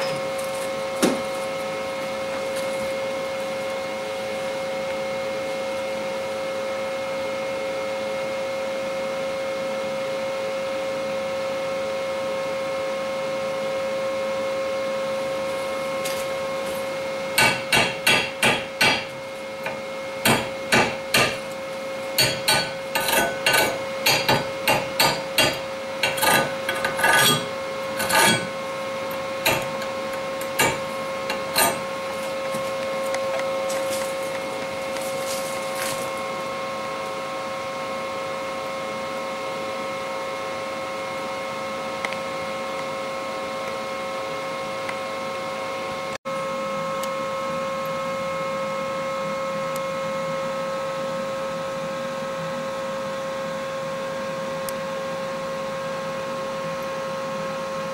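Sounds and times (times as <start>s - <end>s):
steady hum: 14.1s - 38.9s
chipping hammer hitting metal: 17.4s - 21.5s, 22.2s - 28.6s, 29.4s - 31.9s.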